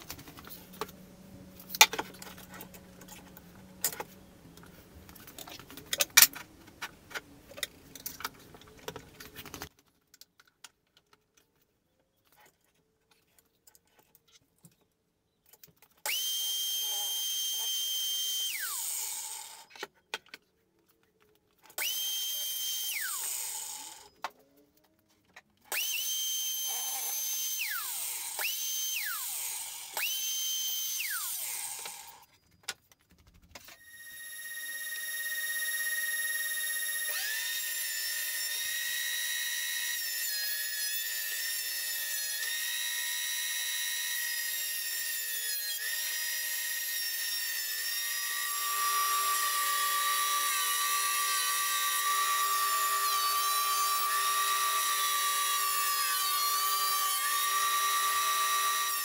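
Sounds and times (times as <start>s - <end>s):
mitre saw spinning and cutting: 16.1s - 19.8s, 21.8s - 24.2s, 25.7s - 32.3s, 33.8s - 59.0s.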